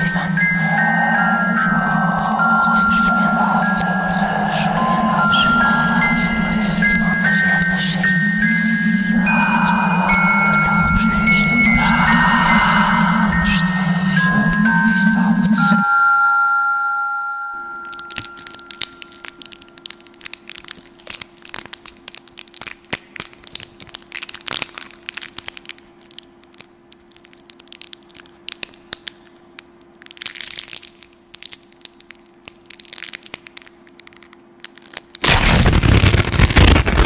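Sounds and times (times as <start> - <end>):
loud rush of noise: 0.0 - 14.8, 35.2 - 37.0
faint steady hum: 0.0 - 37.0
crackling and clicking: 17.8 - 37.0.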